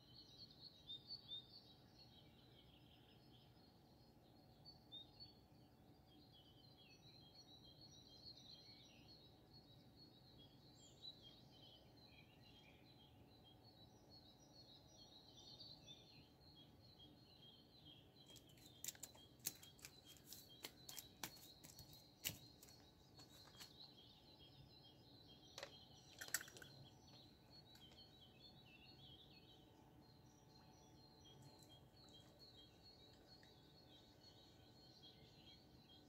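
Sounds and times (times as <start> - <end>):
faint birdsong: 0.0 - 36.0
sharp clicks and taps: 18.3 - 23.7.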